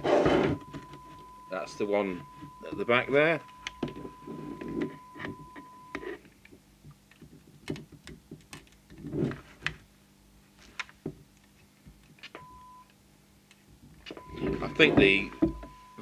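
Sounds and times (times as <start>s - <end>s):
steady test tone: 0.0s - 6.1s, 14.2s - 16.0s.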